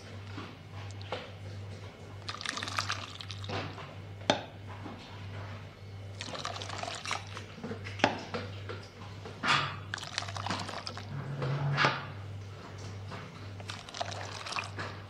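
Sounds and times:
liquid pouring and splashing: 2.2 - 3.9, 6.1 - 8.4, 9.9 - 11.6, 13.3 - 15.0.

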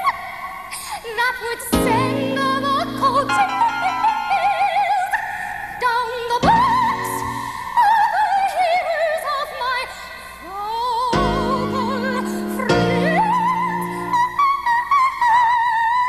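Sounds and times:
operatic soprano singing: 0.0 - 16.0
instrumental accompaniment: 1.8 - 5.8.

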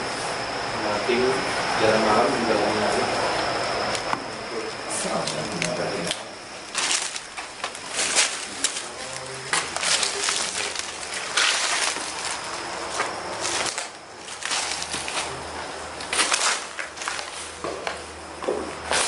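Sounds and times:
crunching and rustling: 5.1 - 19.0.

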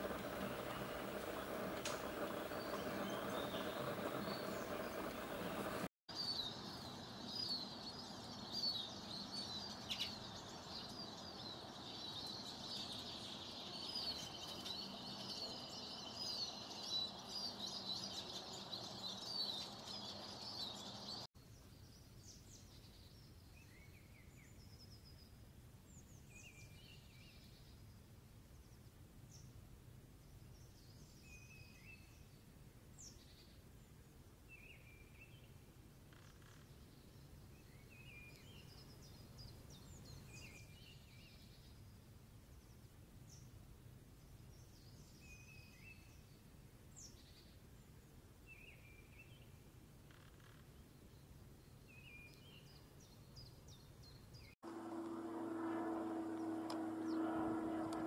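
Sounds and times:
birds chirping: 0.0 - 21.3, 54.4 - 58.0
background hiss: 0.0 - 22.6.

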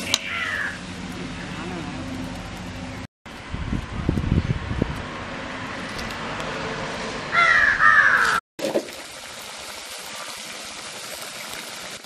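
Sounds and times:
crow cawing: 0.2 - 0.8, 7.3 - 8.4.

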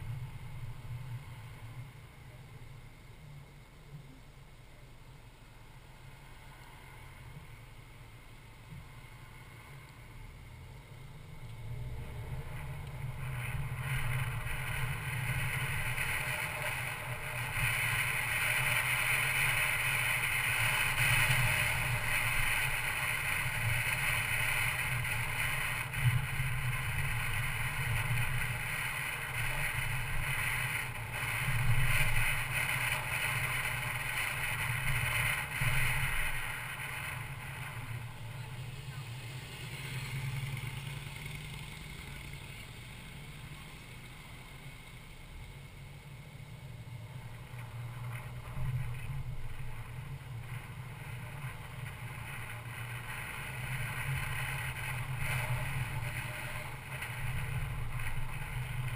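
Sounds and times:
car road and wind noise: 0.0 - 58.9.

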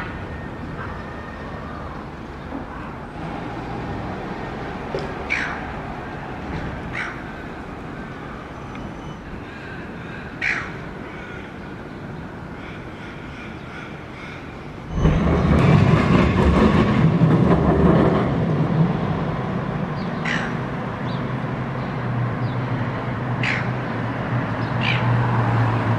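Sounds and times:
city traffic noise: 0.0 - 25.9
gulls squawking: 5.1 - 5.8, 6.8 - 7.6, 8.2 - 15.0, 20.2 - 20.6, 23.4 - 23.9, 24.6 - 25.2.

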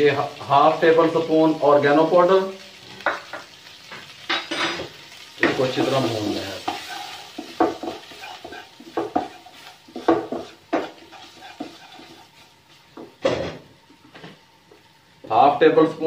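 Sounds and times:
light sizzle: 0.0 - 16.0
wooden spatula scraping a wok: 5.5 - 13.2.

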